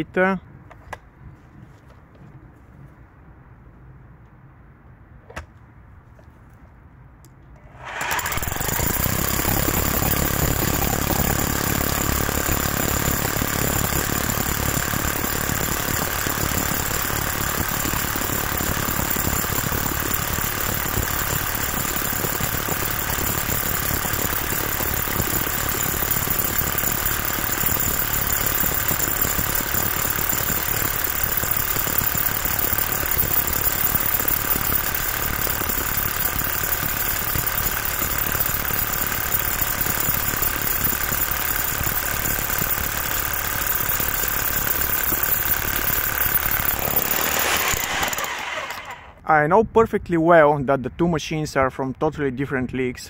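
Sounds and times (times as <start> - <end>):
hammer drill drilling into stone: 7.6 - 49.2.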